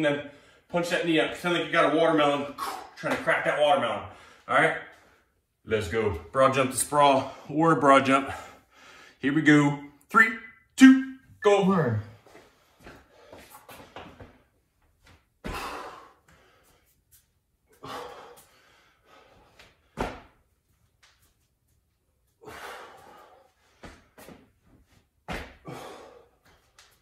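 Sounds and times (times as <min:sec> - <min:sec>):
sneakers scuffling on floor: 0:12.1 - 0:15.7, 0:23.7 - 0:25.6.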